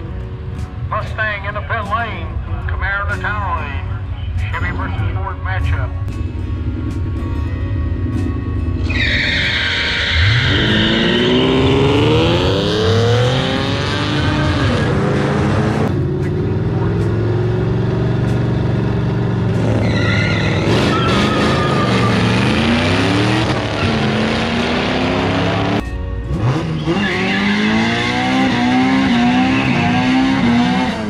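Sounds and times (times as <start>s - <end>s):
car engines revving hard: 8.7s - 31.0s
tyres squealing: 8.8s - 11.5s, 19.6s - 22.8s.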